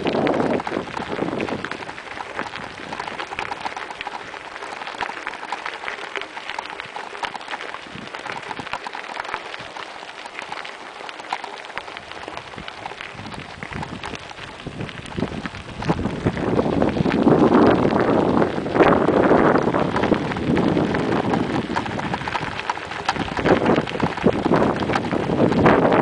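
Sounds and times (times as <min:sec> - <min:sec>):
bicycle tyres crunching gravel: 0:00.0 - 0:26.0.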